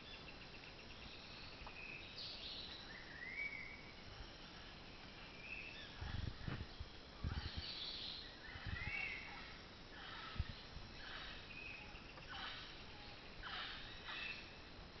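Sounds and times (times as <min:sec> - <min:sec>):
forest background hiss: 0:00.0 - 0:15.0
birds calling harshly: 0:05.6 - 0:14.6.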